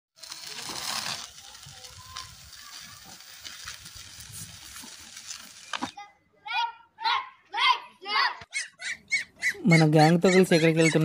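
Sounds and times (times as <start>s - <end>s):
wheelchair rolling on gravel: 0.2s - 6.0s.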